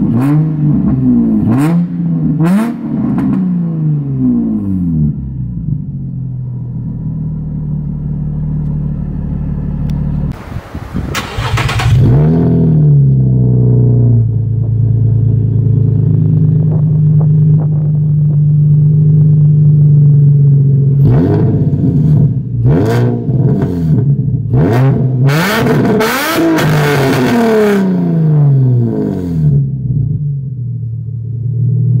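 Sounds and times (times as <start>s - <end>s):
car engine idling and revving: 0.0s - 10.6s, 11.2s - 32.0s.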